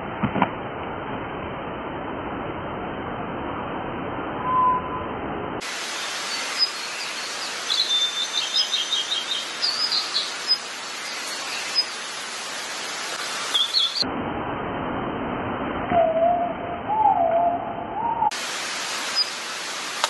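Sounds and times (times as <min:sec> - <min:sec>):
steady outdoor hiss: 0:00.0 - 0:20.0
birds chirping: 0:05.6 - 0:14.0, 0:18.1 - 0:20.0.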